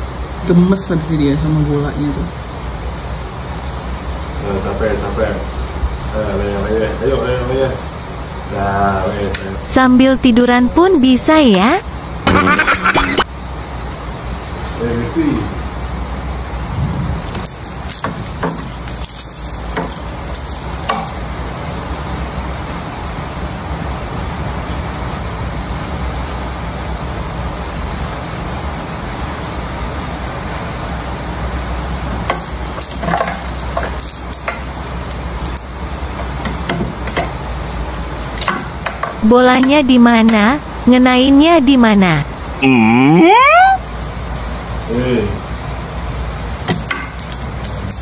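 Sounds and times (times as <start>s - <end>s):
steady background hiss: 0.0s - 48.0s
small bell jingling: 9.7s - 11.8s, 17.2s - 21.4s, 22.0s - 22.5s, 32.3s - 35.8s, 37.9s - 39.9s, 46.7s - 48.0s.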